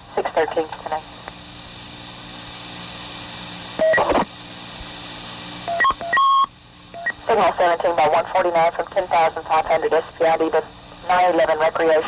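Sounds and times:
radio channel hum and hiss: 0:00.0 - 0:12.0
radio beep tones: 0:03.8 - 0:04.2, 0:05.7 - 0:07.2.

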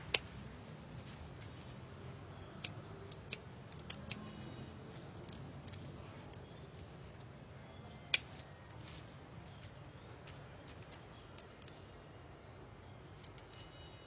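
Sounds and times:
pruning shears snipping: 0:00.0 - 0:00.5, 0:02.5 - 0:06.5, 0:08.1 - 0:08.9
faint low hum: 0:00.0 - 0:14.0.

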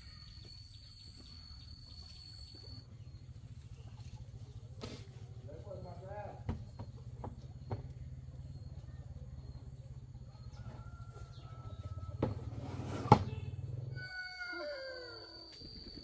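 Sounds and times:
low pulsing hum: 0:00.0 - 0:13.7
rooster crowing: 0:10.4 - 0:12.4, 0:13.9 - 0:15.5.

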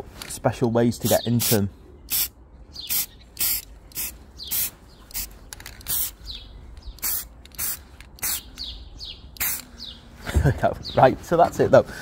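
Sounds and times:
birds chirping: 0:00.6 - 0:12.0
spray paint can hissing: 0:01.2 - 0:06.2, 0:06.9 - 0:08.6, 0:09.4 - 0:09.7.

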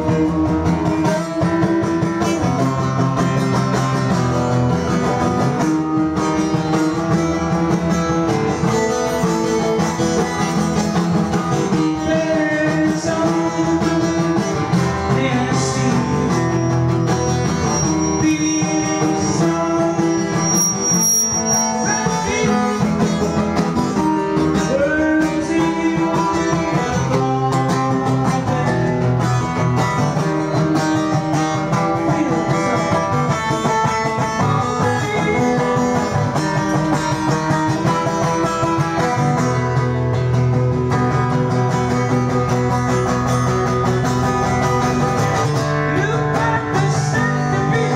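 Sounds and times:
guitar playing a song: 0:00.0 - 0:47.9.

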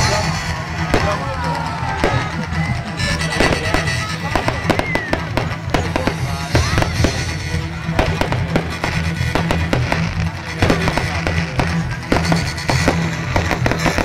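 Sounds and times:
fireworks bangs and crackles: 0:00.0 - 0:14.0
music with steady bass line: 0:00.0 - 0:14.0.

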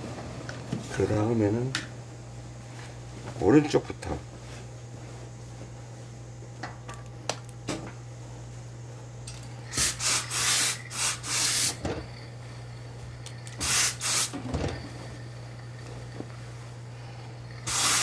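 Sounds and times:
steady low hum: 0:00.0 - 0:18.0
steam iron hissing: 0:09.7 - 0:11.9, 0:13.6 - 0:14.5, 0:17.4 - 0:18.0.

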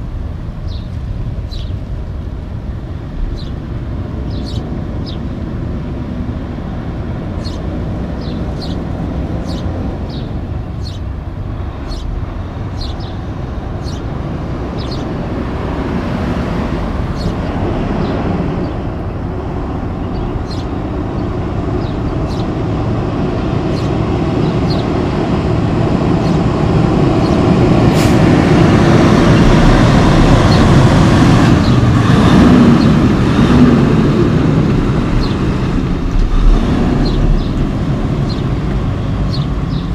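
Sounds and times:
truck engine rumble: 0:00.0 - 0:39.9
sharp air hiss: 0:27.9 - 0:28.3.

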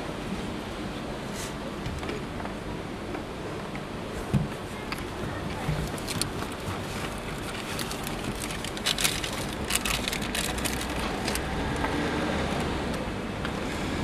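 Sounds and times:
paper receipt crinkling: 0:05.8 - 0:11.5.

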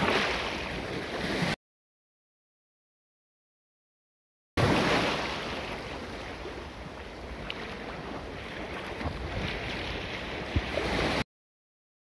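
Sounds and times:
sea surf splashing: 0:00.0 - 0:01.6, 0:04.6 - 0:11.2
wind buffeting microphone: 0:06.8 - 0:11.2.

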